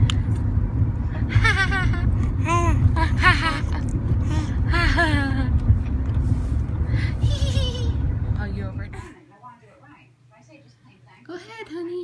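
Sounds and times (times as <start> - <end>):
car rumble: 0.0 - 9.2.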